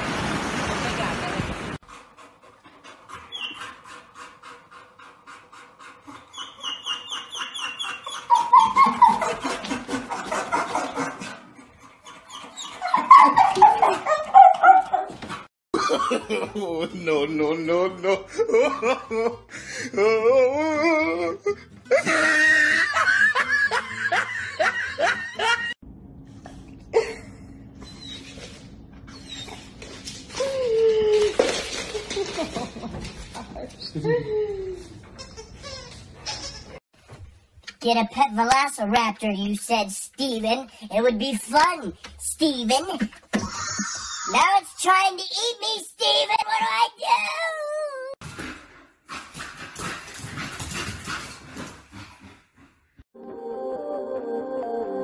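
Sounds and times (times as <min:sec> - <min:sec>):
dog whining: 0:06.1 - 0:09.4, 0:12.0 - 0:15.3, 0:27.8 - 0:31.6
person laughing hard: 0:15.8 - 0:17.0, 0:18.0 - 0:25.8, 0:43.4 - 0:44.3.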